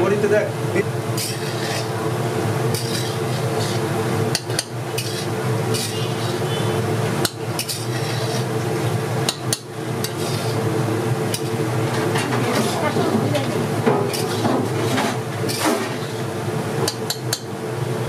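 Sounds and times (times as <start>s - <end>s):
steady background hum: 0.0s - 18.0s
metal utensils clanking on pot: 1.2s - 1.9s, 2.7s - 6.4s, 7.2s - 8.4s, 11.3s - 16.1s.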